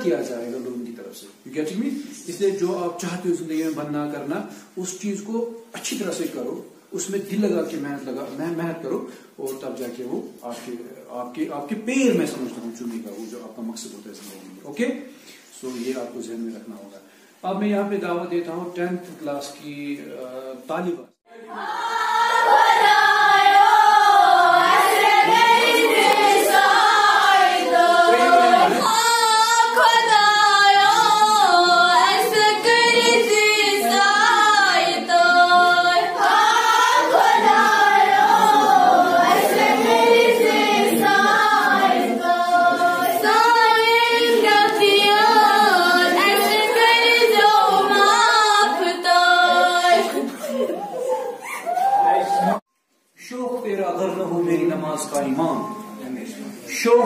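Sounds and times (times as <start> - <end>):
girls singing into a microphone: 21.3 - 51.9.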